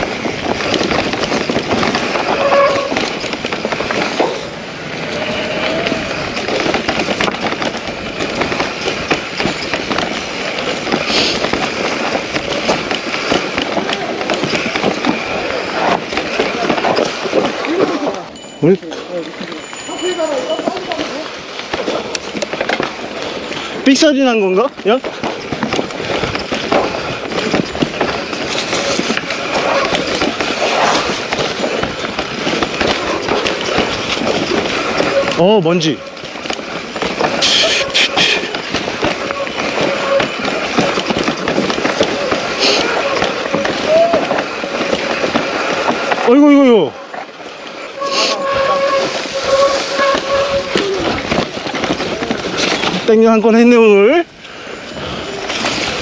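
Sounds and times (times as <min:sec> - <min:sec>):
mountain bike rattling over rocks: 0:00.0 - 0:56.0
tyres rumbling over gravel: 0:00.0 - 0:56.0
bike brakes squealing: 0:01.3 - 0:06.7, 0:32.7 - 0:36.3, 0:37.2 - 0:45.7, 0:47.8 - 0:52.0.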